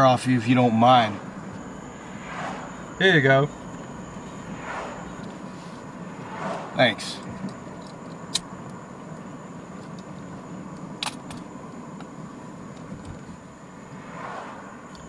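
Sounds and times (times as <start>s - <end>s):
engine and road noise in cab: 0.0s - 15.0s.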